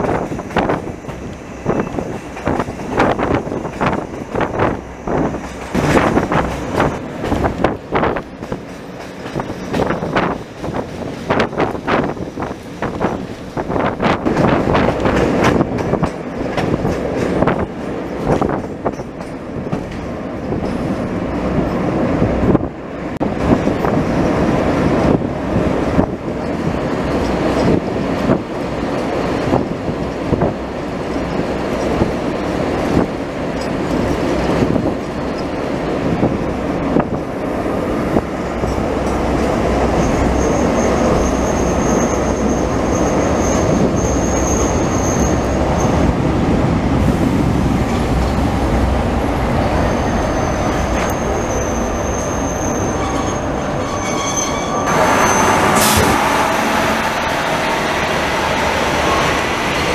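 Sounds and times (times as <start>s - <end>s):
wheels clacking over rail joints: 0.0s - 22.0s, 23.4s - 59.9s
diesel locomotive passing: 0.0s - 59.9s
train rumble: 0.0s - 59.9s
high wheel squeal: 39.8s - 46.0s, 49.8s - 59.9s.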